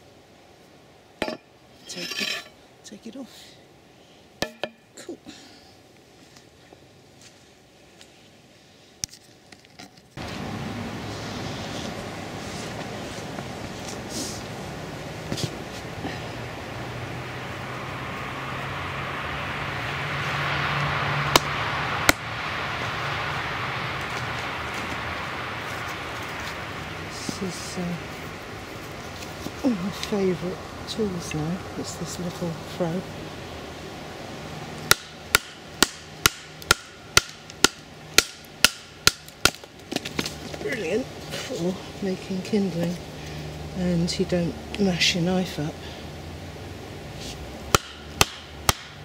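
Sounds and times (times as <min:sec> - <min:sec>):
wind rushing through pine trees: 0:00.0 - 0:09.5, 0:10.1 - 0:49.0
splitting blade striking stump: 0:34.9 - 0:40.1, 0:47.7 - 0:49.0.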